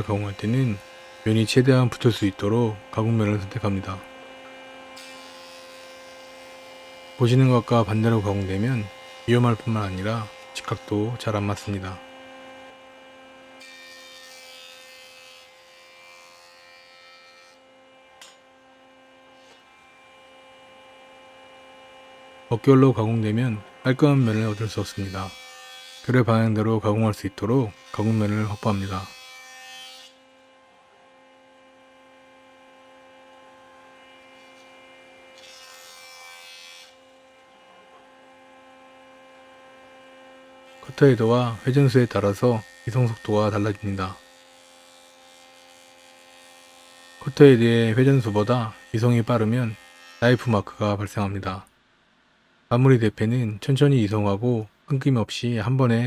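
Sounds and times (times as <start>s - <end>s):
jointer humming: 0.0s - 17.2s, 18.1s - 51.6s.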